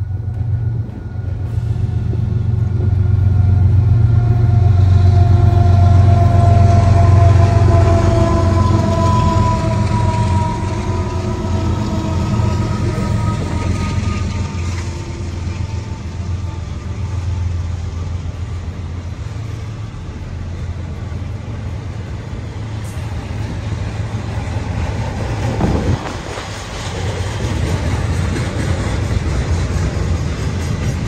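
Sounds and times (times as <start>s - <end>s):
train wheels rumbling on track: 0.0s - 31.0s.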